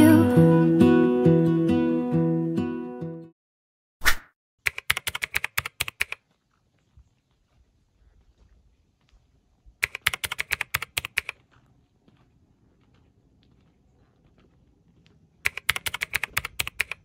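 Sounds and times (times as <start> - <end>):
keyboard keystroke clicks: 4.6 - 6.2, 9.8 - 11.4, 15.4 - 17.0.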